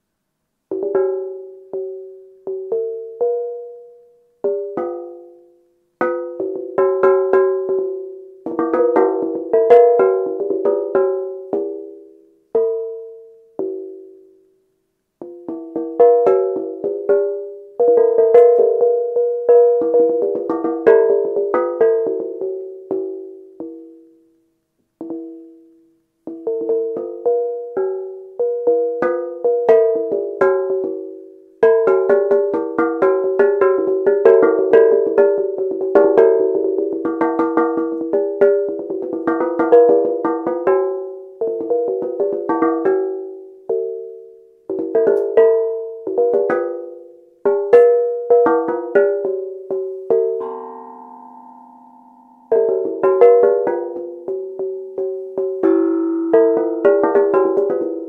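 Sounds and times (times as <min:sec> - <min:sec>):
steel tongue drum notes: 0:00.7 - 0:14.5, 0:15.2 - 0:58.0.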